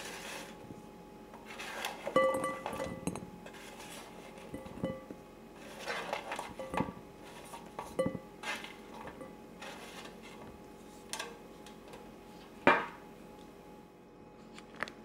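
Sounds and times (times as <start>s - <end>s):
utensils and dishes clinking: 1.6s - 10.1s.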